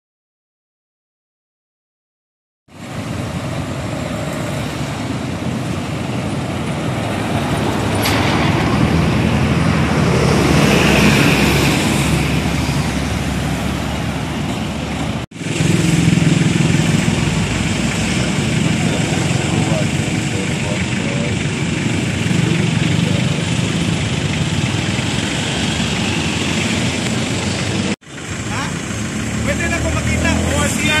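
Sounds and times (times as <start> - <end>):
vehicle engine humming close by: 2.7 - 31.0
vehicles passing on road: 2.7 - 31.0.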